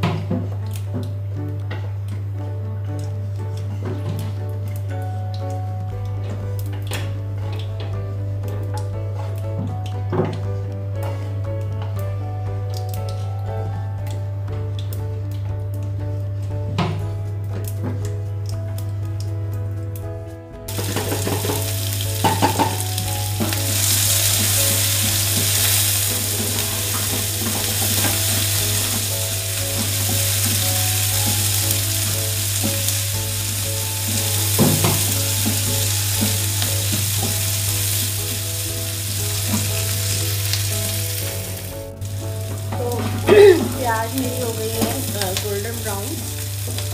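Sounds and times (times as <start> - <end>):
spatula knocking on pan: 20.7 - 33.2, 34.0 - 37.6
onions sizzling in oil: 20.7 - 46.9.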